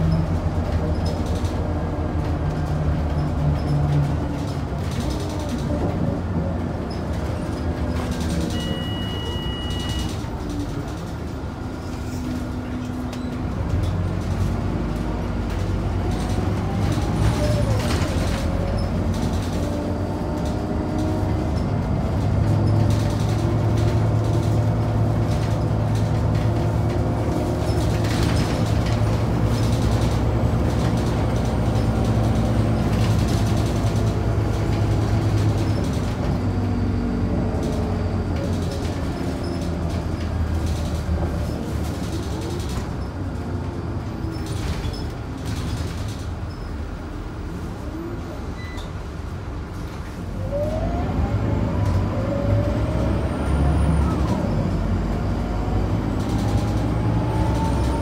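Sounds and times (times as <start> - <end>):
bus diesel engine rumbling: 0.0 - 58.0
short electronic beep: 8.6 - 10.1.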